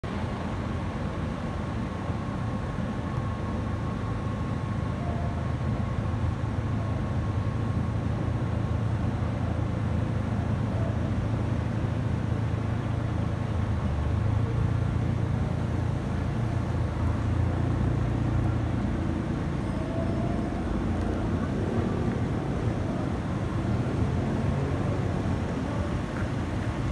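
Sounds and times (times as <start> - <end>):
jet airliner flying over: 15.9 - 26.9.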